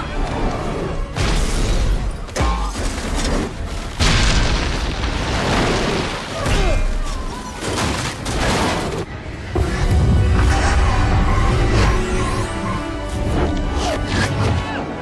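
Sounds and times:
heavy booms and debris crashes: 1.2 - 9.1.

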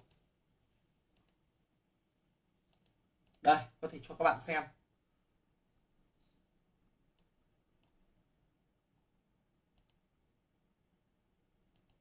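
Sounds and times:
computer mouse clicks: 0.0 - 0.3, 1.1 - 1.4, 2.7 - 3.5, 7.1 - 8.0, 9.7 - 10.1, 11.7 - 12.0.

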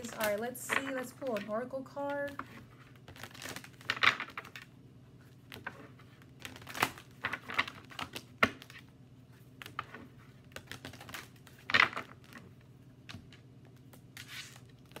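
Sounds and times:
cards being shuffled: 0.0 - 15.0.

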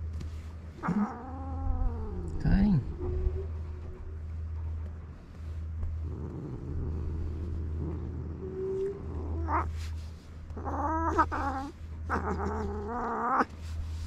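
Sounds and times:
cat growling and yowling: 0.8 - 3.6, 6.0 - 14.0.

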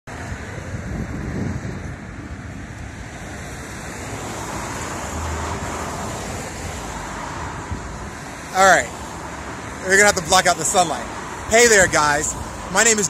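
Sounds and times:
wind on microphone: 0.1 - 8.3.

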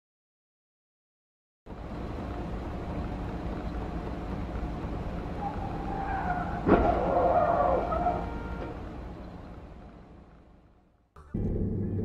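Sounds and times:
engine and road noise hum: 1.7 - 12.0
tyres squealing: 5.4 - 8.3
vehicles crashing: 5.4 - 9.0.

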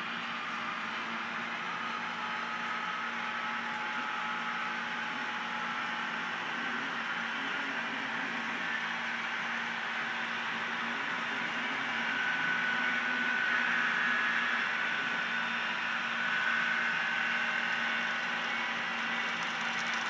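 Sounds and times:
model train whine: 0.0 - 20.0.

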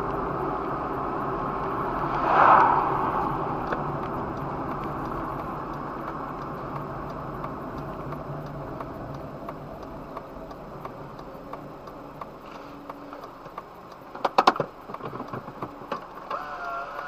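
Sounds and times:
car tyre and engine noise: 0.0 - 17.0
faint regular ticks: 5.0 - 17.0.

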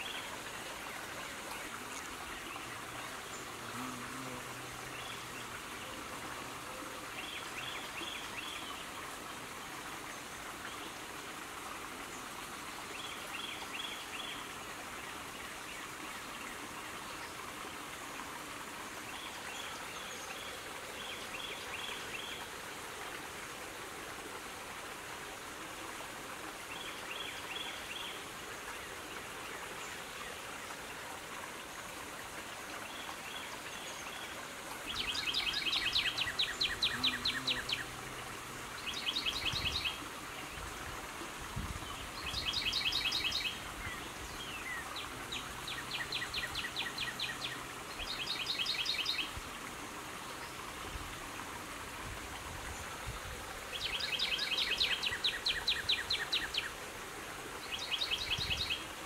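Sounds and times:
steady outdoor hiss: 0.0 - 59.0
songbirds singing: 32.8 - 40.7, 41.8 - 49.4, 53.7 - 56.8, 57.6 - 59.0.

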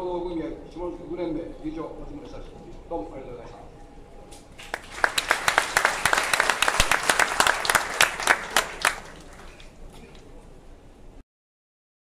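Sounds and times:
sharp close claps: 4.6 - 9.7
audience applauding: 4.6 - 10.2.

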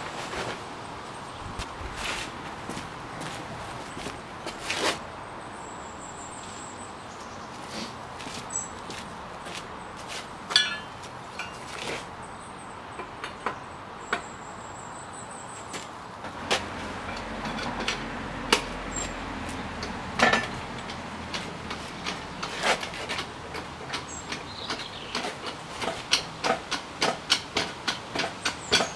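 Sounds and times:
footsteps on paving: 1.5 - 5.0, 7.5 - 10.4
metal clinks and knocks: 10.5 - 11.8, 19.8 - 24.0.

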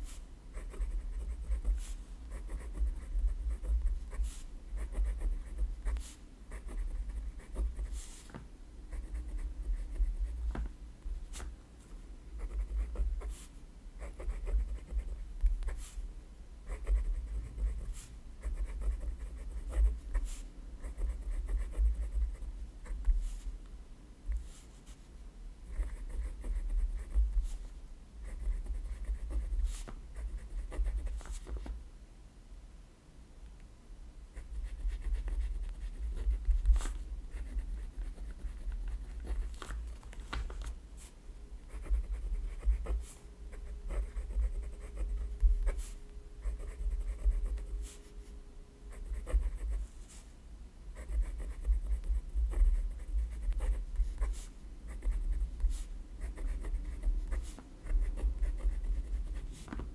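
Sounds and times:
pen scratching on paper: 0.5 - 8.1, 12.4 - 13.4, 14.0 - 15.8, 16.7 - 23.1, 25.7 - 27.6, 28.2 - 31.5, 34.4 - 39.6, 41.7 - 48.0, 48.9 - 49.8, 51.0 - 59.9.

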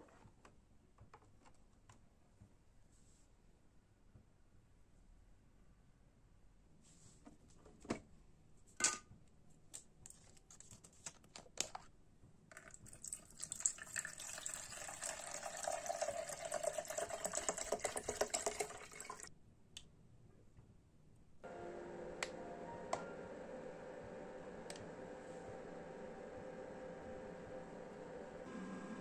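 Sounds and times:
water pouring into plastic tank: 12.5 - 19.3.

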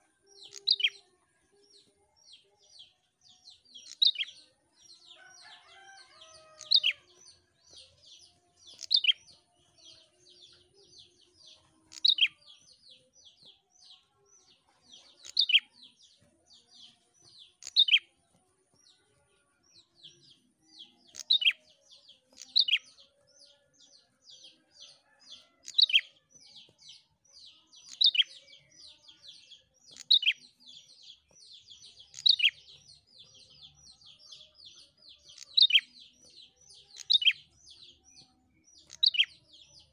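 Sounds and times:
bird chipping song: 0.0 - 39.9.

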